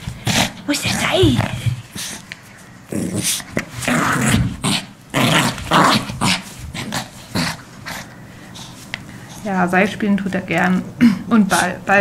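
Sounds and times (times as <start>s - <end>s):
small dog growling: 2.9s - 8.1s.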